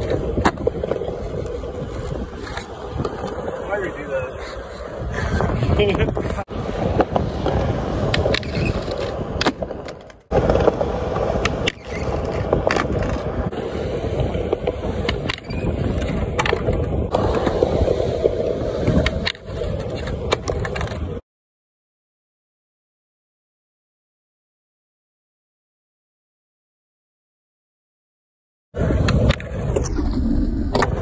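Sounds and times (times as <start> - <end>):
skateboard clacks: 0.0 - 3.7, 4.3 - 21.2
skateboard scraping on concrete ledge: 0.0 - 21.2
skateboard wheels rolling on concrete: 0.0 - 21.2, 28.7 - 31.0.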